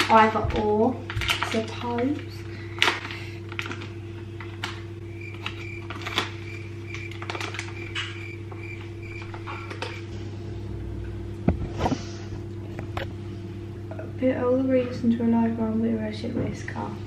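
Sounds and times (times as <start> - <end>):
handling rustles and clicks: 0.0 - 10.1
appliance electrical hum: 0.0 - 17.0.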